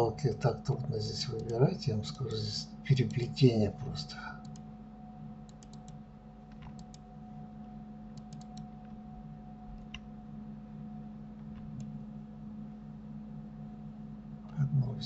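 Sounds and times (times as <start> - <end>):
low electrical hum: 0.0 - 15.0
mouse and keyboard clicks: 5.5 - 7.0, 8.2 - 8.7.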